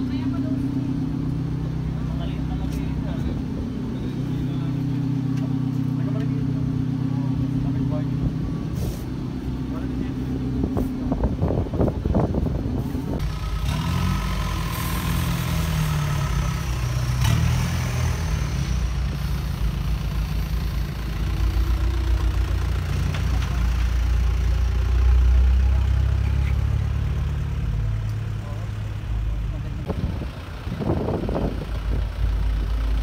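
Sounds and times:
vehicle engine rumble: 0.0 - 33.0.

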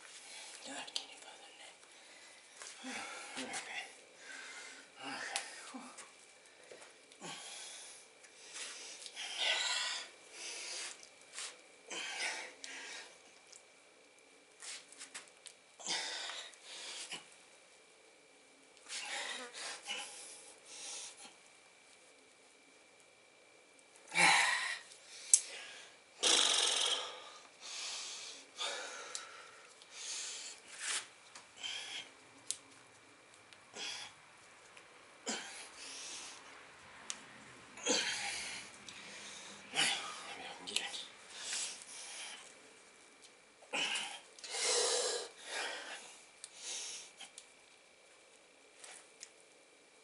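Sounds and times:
man breathing heavily: 1.9 - 13.3, 15.8 - 17.3, 18.9 - 21.4, 24.1 - 31.0, 31.6 - 32.2, 33.7 - 34.2, 35.2 - 36.5, 37.8 - 42.6, 43.7 - 47.3
man breathing hard in blasts: 24.2 - 30.6, 37.8 - 40.4, 43.7 - 47.2.

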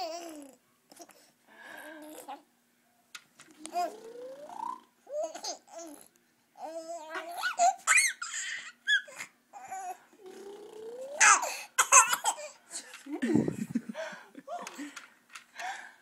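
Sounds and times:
baby babbling and laughing: 0.0 - 1.2, 3.7 - 12.6.

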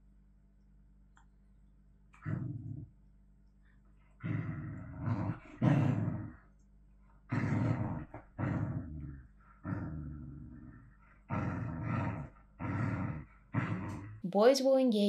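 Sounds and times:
dog growling: 2.2 - 3.0, 4.2 - 6.5, 7.3 - 14.2.

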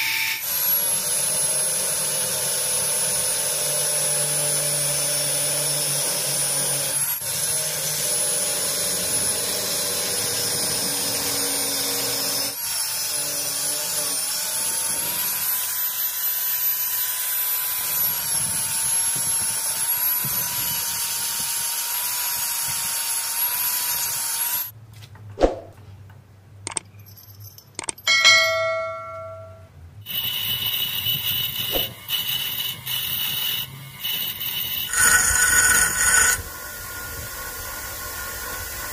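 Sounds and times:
angle grinder cutting steel: 0.0 - 24.7, 30.1 - 38.9
short metallic ring: 26.8 - 36.3
bench grinder grinding metal: 30.1 - 38.9.

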